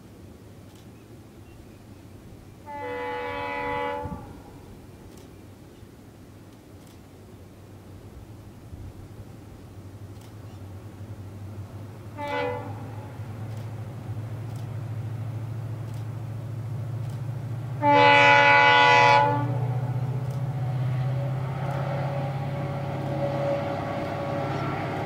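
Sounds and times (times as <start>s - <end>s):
diesel train rumble: 0.0s - 25.0s
locomotive horn: 2.6s - 4.6s, 12.1s - 13.3s, 17.8s - 25.0s.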